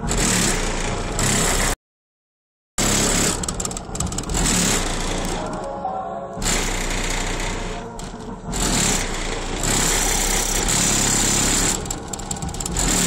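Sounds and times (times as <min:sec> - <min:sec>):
pickup truck engine running: 0:02.8 - 0:05.5, 0:06.7 - 0:13.0.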